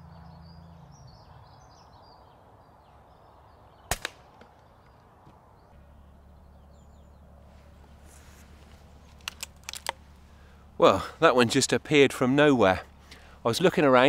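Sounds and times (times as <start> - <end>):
faint birdsong: 0.0 - 14.0
air rifle shot crack: 3.9 - 4.6.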